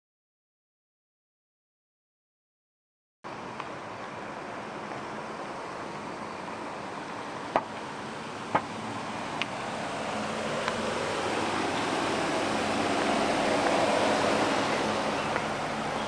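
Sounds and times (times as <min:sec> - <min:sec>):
pickup truck rolling slowly: 0:03.3 - 0:16.0.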